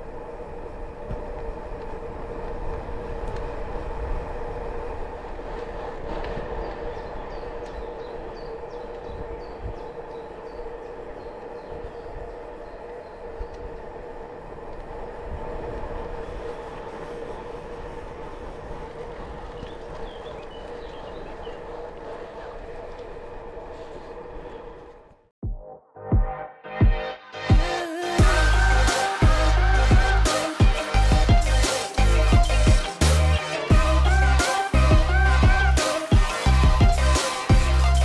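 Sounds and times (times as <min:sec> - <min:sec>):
wind rumble on microphone: 0:00.0 - 0:25.2
bicycle tyre hum: 0:00.0 - 0:25.4, 0:27.6 - 0:38.0
bird chirps: 0:19.6 - 0:21.6.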